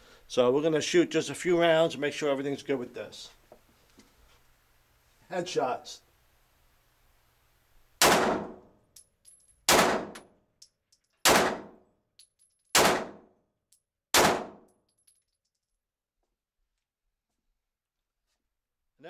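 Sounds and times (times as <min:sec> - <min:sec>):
pistol shots ringing indoors: 0:08.0 - 0:08.8, 0:09.7 - 0:10.3, 0:11.2 - 0:11.9, 0:12.7 - 0:13.4, 0:14.1 - 0:14.8.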